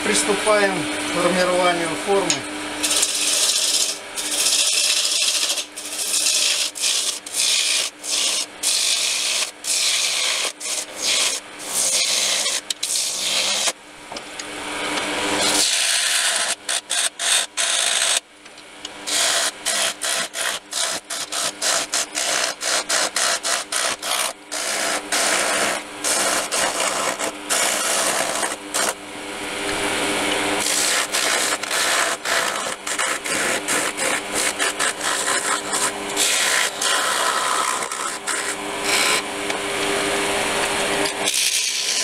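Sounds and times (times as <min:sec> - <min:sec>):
lathe humming: 0:00.0 - 0:18.2, 0:19.0 - 0:42.0
turning tool scraping wood: 0:01.2 - 0:13.8, 0:15.3 - 0:18.2, 0:19.1 - 0:29.0, 0:30.2 - 0:39.3, 0:41.0 - 0:42.0.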